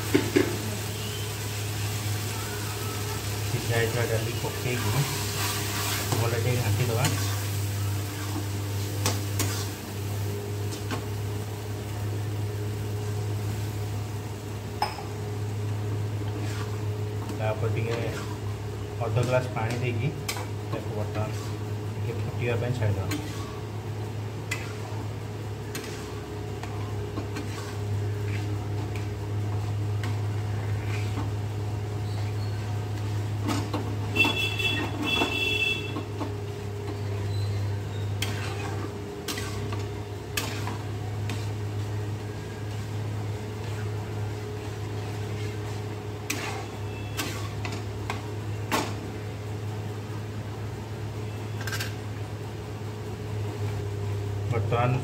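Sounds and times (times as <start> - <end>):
steady low hum: 3.5 - 55.0
ladle stirring and scraping pot: 4.0 - 7.4, 8.0 - 9.9, 16.2 - 18.5, 19.1 - 21.7, 23.0 - 23.6, 24.4 - 25.0, 25.6 - 31.4, 36.8 - 47.9.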